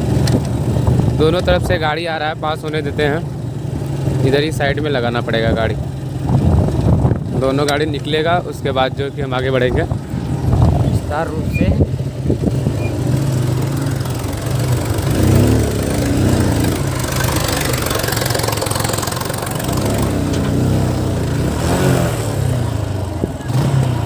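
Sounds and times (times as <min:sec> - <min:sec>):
motorcycle engine idling: 0:00.0 - 0:21.4, 0:22.3 - 0:24.0
tractor diesel engine passing: 0:00.0 - 0:24.0.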